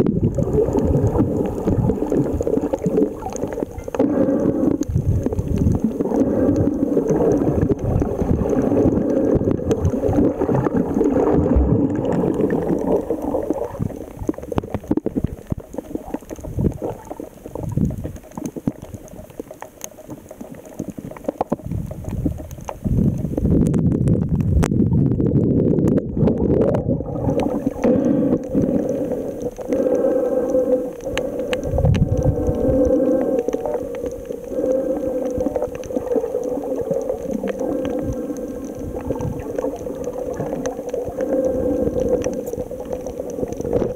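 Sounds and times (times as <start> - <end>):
muffled underwater water rushing: 0.0 - 43.9.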